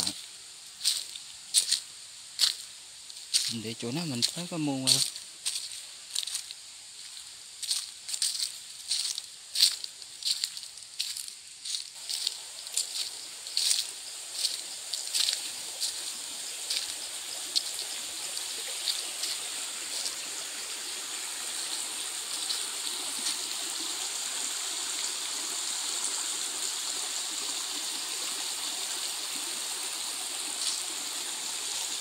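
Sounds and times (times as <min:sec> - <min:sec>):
footsteps crunching on dry leaves: 0:00.0 - 0:23.6, 0:30.4 - 0:31.3
steady high hiss: 0:00.0 - 0:32.0
stream trickling over stones: 0:00.0 - 0:32.0.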